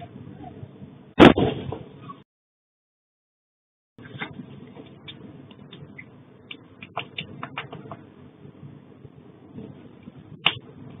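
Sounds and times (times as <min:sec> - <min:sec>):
low steady rumble: 0:04.0 - 0:11.0.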